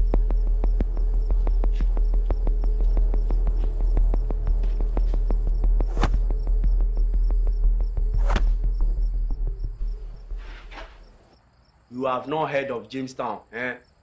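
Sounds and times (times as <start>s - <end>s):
rapid ticking: 0.0s - 11.2s
low hum: 0.0s - 11.4s
high insect-like chirring: 0.0s - 11.8s
sharp whoosh: 8.0s - 11.1s.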